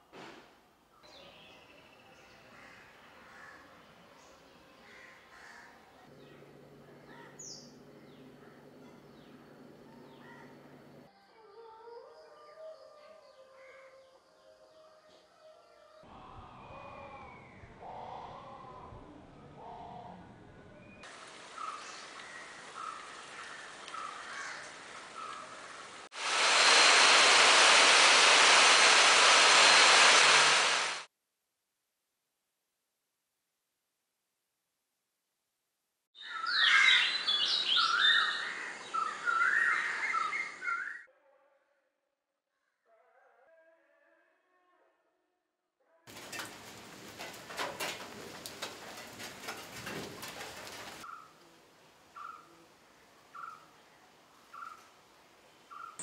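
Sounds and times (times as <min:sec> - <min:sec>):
faint bird calls: 0:01.2 - 0:11.0
birds calling: 0:01.2 - 0:11.1, 0:21.0 - 0:27.1, 0:36.2 - 0:41.0, 0:55.7 - 0:56.0
heavy rain pouring: 0:24.7 - 0:31.1
crackling rustling with clicks: 0:46.1 - 0:51.0.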